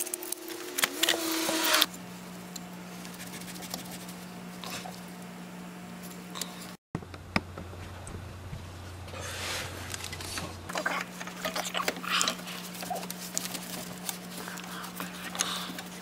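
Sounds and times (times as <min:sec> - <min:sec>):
gloved hand clicking and rustling: 0:12.7 - 0:16.0.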